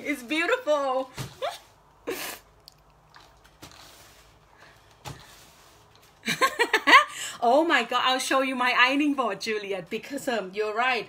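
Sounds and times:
woman talking: 0:00.0 - 0:01.2, 0:07.4 - 0:11.0
paper rubbing on countertop: 0:03.6 - 0:04.5, 0:05.1 - 0:06.1.

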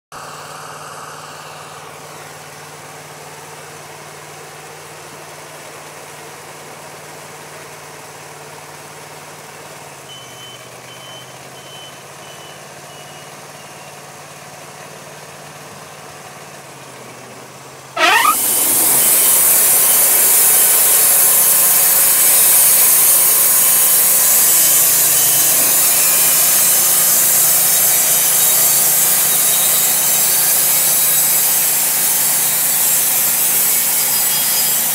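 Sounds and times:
band sawmill running: 0:13.0 - 0:34.9.

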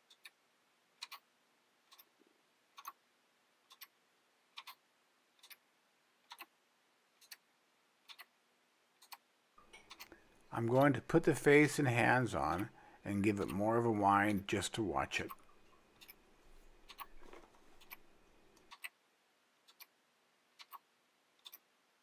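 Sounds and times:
clock ticking: 0:00.0 - 0:00.4, 0:01.0 - 0:06.6, 0:07.2 - 0:08.4, 0:09.0 - 0:16.2, 0:16.8 - 0:17.2, 0:18.6 - 0:19.0, 0:19.6 - 0:21.7.

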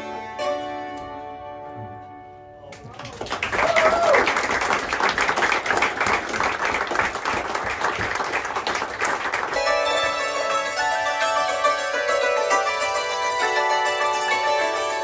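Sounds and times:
hammered dulcimers playing: 0:00.0 - 0:02.6, 0:09.6 - 0:15.0
audience applauding: 0:02.7 - 0:09.9.

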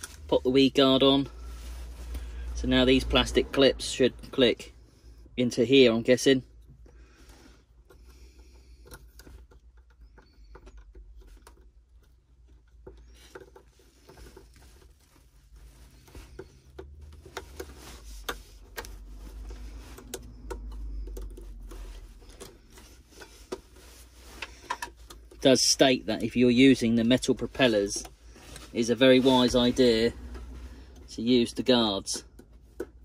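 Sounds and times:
hard plastic clicking: 0:19.9 - 0:23.7, 0:32.2 - 0:33.0.

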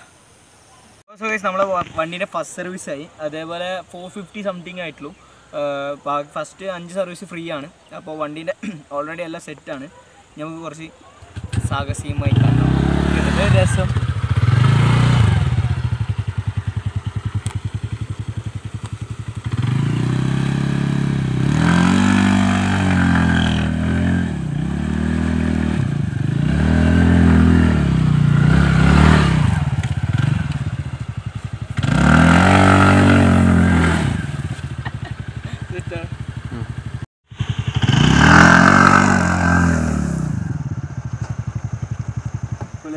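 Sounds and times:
scooter engine idling and revving: 0:11.2 - 0:42.9.

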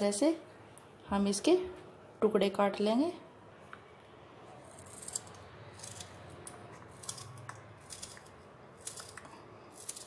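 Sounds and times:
knife cutting crunchy rind: 0:04.6 - 0:10.0.

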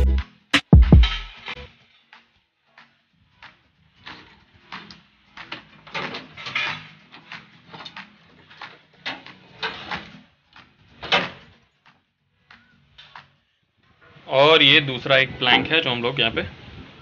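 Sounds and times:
metal clanks and rattles: 0:05.8 - 0:10.1.

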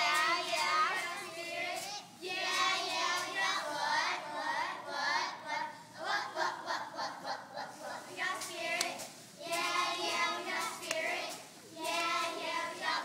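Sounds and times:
girls chanting a cheer: 0:00.0 - 0:13.0
sharp hand claps: 0:08.8 - 0:09.0, 0:10.7 - 0:11.1.

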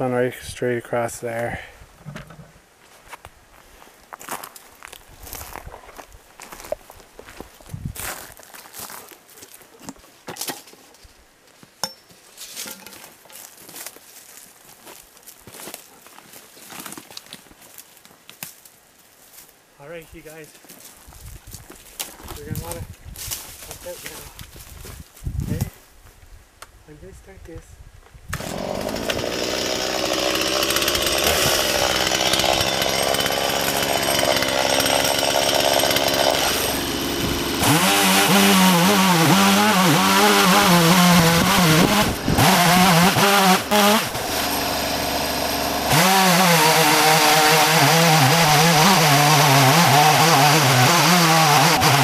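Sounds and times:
chainsaw cutting tree: 0:28.3 - 0:52.0.

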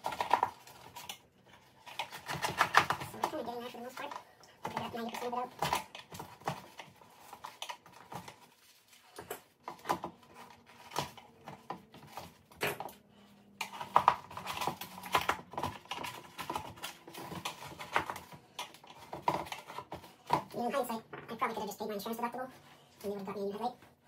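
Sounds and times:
hand tool scraping plastic: 0:00.0 - 0:21.5.

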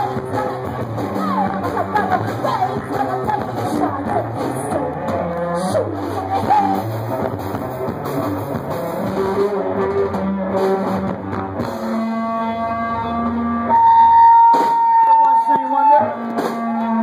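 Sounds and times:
rock band playing live: 0:00.0 - 0:17.0
electric guitar held high note: 0:11.8 - 0:17.0.

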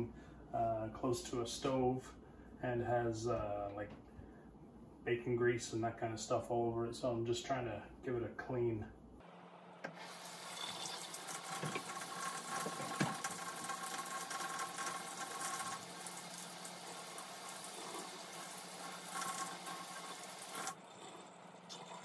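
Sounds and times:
tap water running into sink: 0:09.9 - 0:20.8.

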